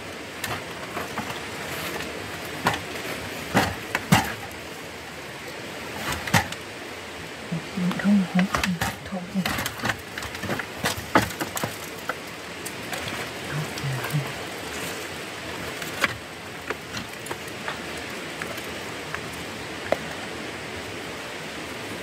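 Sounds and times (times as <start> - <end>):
wooden basket clicks and knocks: 0.4 - 4.6, 6.0 - 6.6, 8.0 - 14.2, 15.7 - 19.2.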